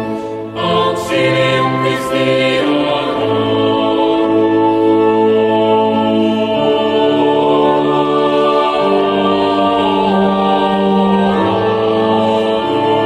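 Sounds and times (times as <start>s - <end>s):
choir singing held chords: 0.0s - 13.0s.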